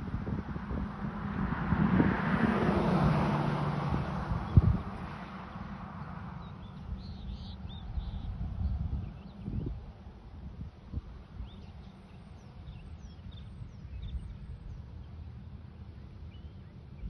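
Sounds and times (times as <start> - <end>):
vehicle passing by: 0.0 - 9.9
bird chirps: 6.4 - 8.4.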